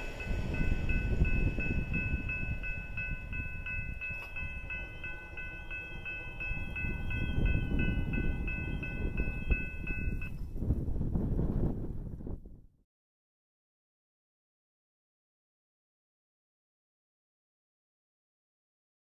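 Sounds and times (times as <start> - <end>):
crossing warning bell ringing: 0.0 - 10.4.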